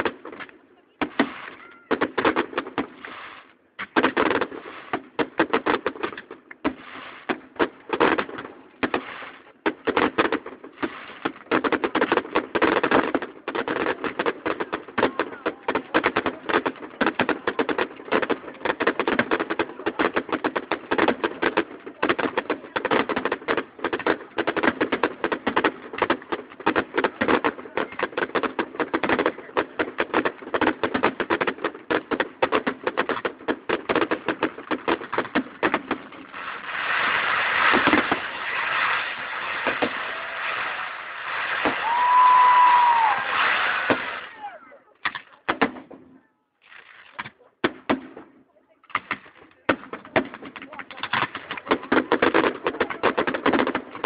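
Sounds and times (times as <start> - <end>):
fireworks bangs and crackling: 0.0 - 54.0.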